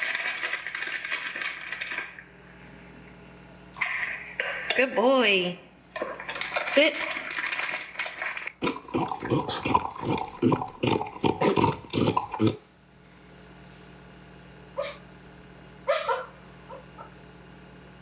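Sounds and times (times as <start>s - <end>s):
dog barking: 14.8s - 15.0s, 15.8s - 17.1s
dog crying: 14.8s - 15.0s, 15.9s - 17.1s.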